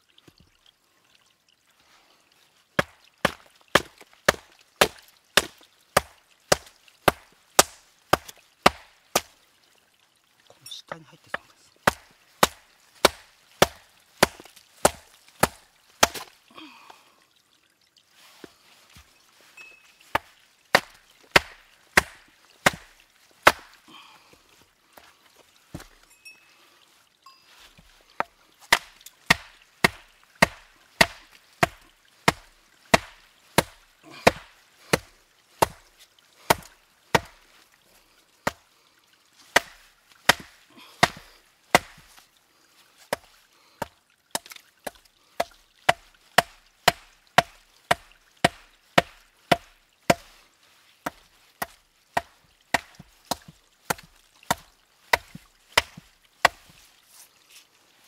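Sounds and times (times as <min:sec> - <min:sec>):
hammer striking rock: 0:02.8 - 0:09.3, 0:11.3 - 0:16.3, 0:20.1 - 0:23.8, 0:28.2 - 0:35.8, 0:36.5 - 0:37.4, 0:39.6 - 0:42.2, 0:44.3 - 0:50.3, 0:51.0 - 0:56.7.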